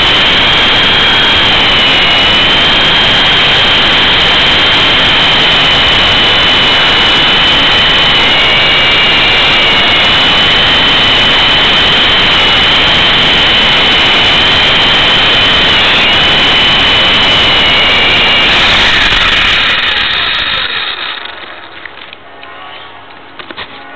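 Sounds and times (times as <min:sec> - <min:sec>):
rotor wash and wind rush: 0:00.0 - 0:21.1
high motor whine: 0:00.0 - 0:23.9.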